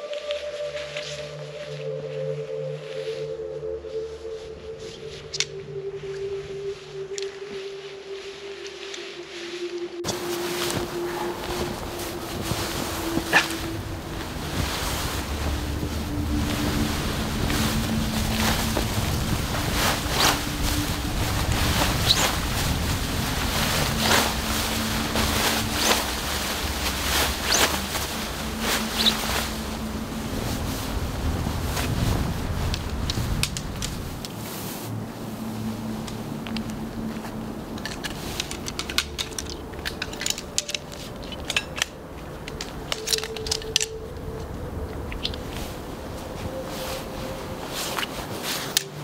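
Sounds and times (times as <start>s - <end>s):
tent fabric rustling: 0.0s - 49.0s
wind rumble on microphone: 9.2s - 49.0s
camping gear clicks and clinks: 9.7s - 30.5s, 31.8s - 34.4s, 36.0s - 49.0s.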